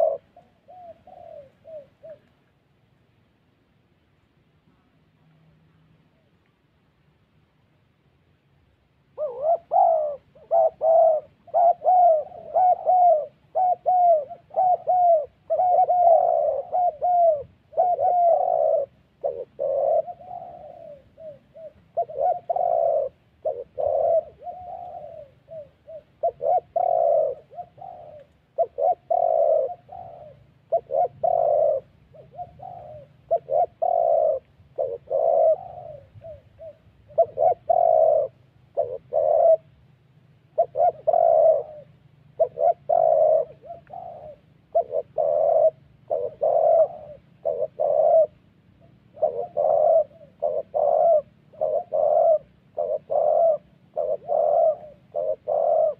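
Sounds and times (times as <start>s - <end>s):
doves cooing: 0.0s - 2.7s, 9.0s - 55.9s.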